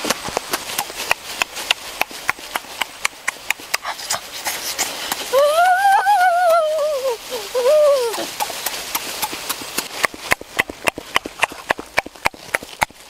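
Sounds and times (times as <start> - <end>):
boy singing wordless ooh: 5.3 - 8.3.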